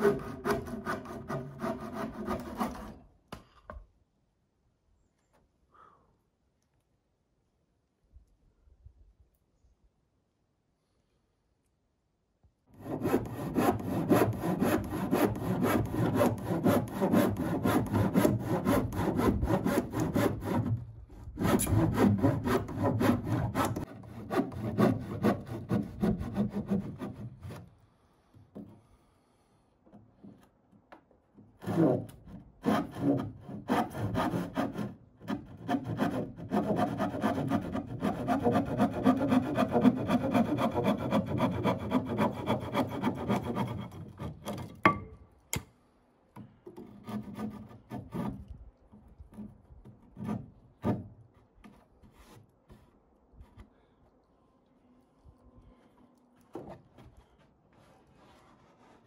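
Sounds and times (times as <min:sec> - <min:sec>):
hand saw cutting wood: 0:00.0 - 0:03.1, 0:12.7 - 0:27.7, 0:31.6 - 0:44.8, 0:46.8 - 0:48.6, 0:50.0 - 0:51.1.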